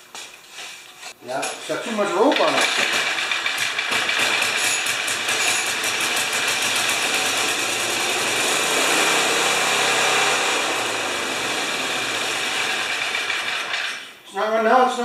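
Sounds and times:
snowblower engine running: 2.6 - 14.0.

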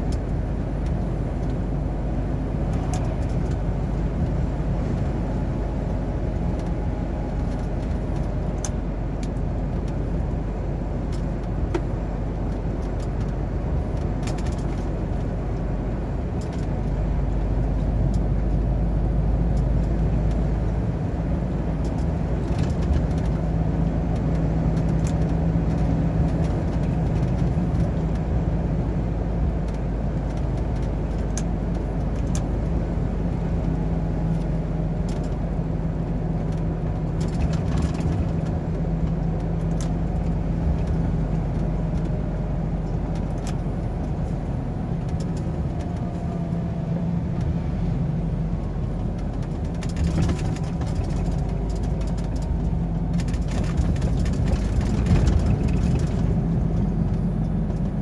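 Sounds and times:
diesel engine drone: 0.0 - 58.0
tyre and road noise: 0.0 - 58.0
clicks and rattles: 49.1 - 57.9.

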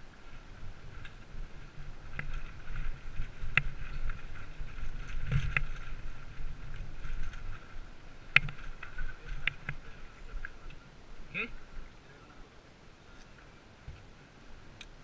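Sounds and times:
tyres on dirt trail: 0.0 - 15.0
wind rumble: 0.0 - 15.0
bike rattling knocks: 2.0 - 10.6.

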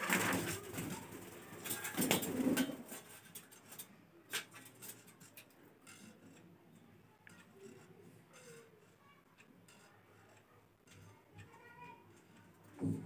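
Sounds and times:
parrot wings flapping: 0.0 - 2.9.

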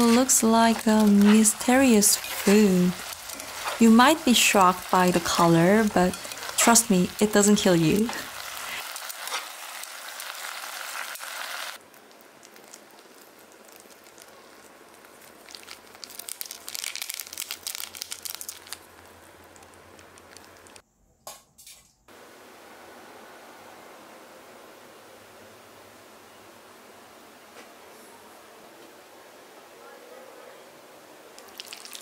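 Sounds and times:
noodles sizzling in a pan: 0.0 - 20.8, 31.5 - 32.0
plastic packet crinkling: 8.0 - 20.8.

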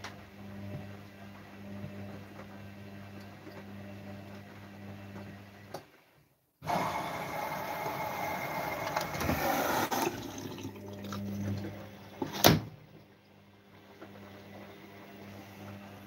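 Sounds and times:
water rushing into washing machine: 6.6 - 16.0.

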